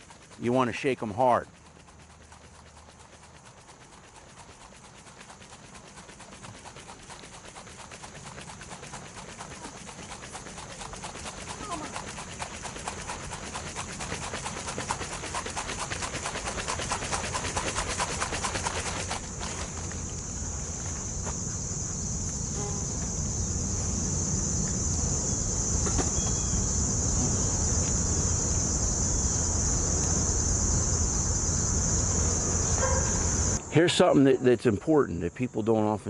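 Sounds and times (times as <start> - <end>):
jar sloshing and rattling: 0.0 - 20.0
crickets chirring: 0.0 - 36.0.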